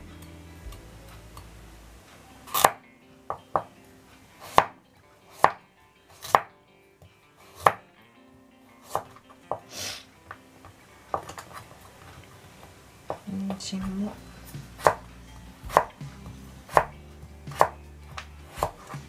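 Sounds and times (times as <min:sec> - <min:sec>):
knife chopping on cutting board: 0:02.5 - 0:02.8, 0:04.4 - 0:04.7, 0:05.3 - 0:05.6, 0:06.2 - 0:06.5, 0:07.6 - 0:07.8, 0:08.9 - 0:09.7, 0:13.1 - 0:15.1, 0:15.7 - 0:19.0
knife scraping cutting board: 0:17.5 - 0:19.0.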